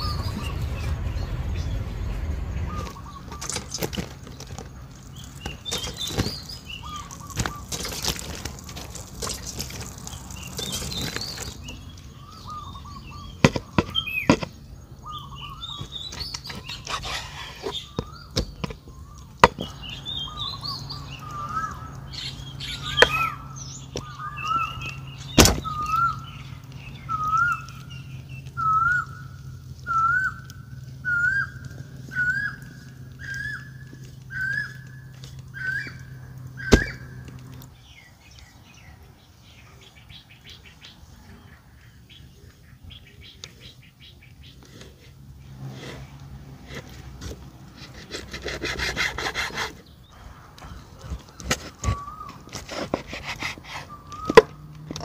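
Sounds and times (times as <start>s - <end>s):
bird calling upward note: 27.0s - 37.2s.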